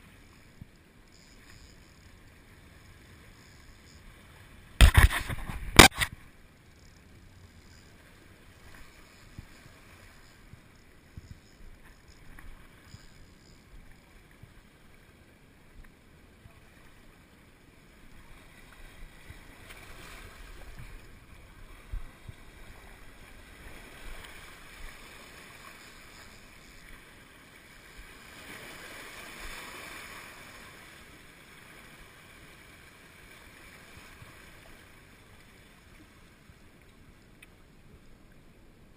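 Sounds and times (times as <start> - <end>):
camera handling knocks: 4.8 - 6.1.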